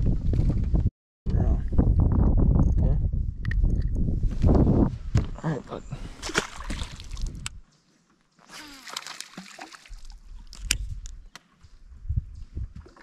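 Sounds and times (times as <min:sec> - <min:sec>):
water sloshing against boat hull: 0:08.6 - 0:10.2.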